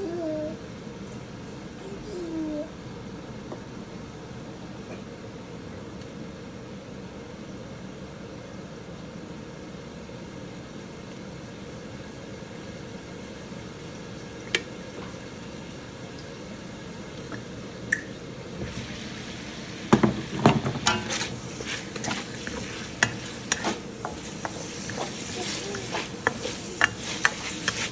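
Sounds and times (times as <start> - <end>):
bacon sizzling: 18.6 - 27.9.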